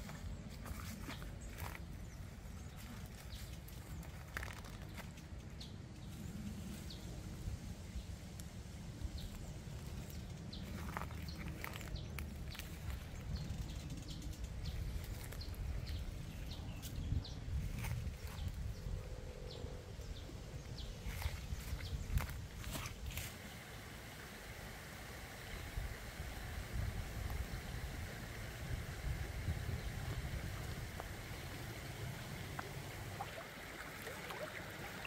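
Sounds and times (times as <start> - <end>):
leafy branches rustling: 0.0 - 5.4, 6.1 - 19.0, 20.3 - 35.0
steady low rumble: 0.0 - 35.0
small stems snapping: 4.0 - 5.3.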